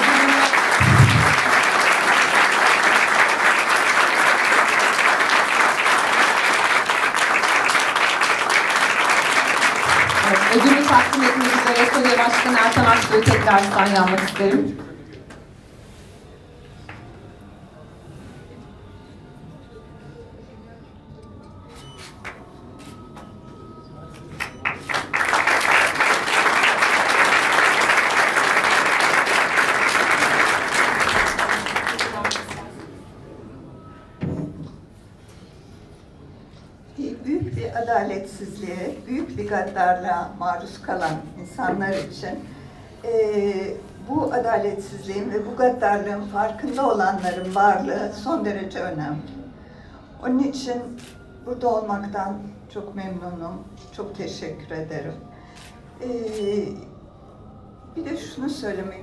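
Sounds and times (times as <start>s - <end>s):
audience applauding: 0.0s - 15.0s, 24.4s - 32.9s.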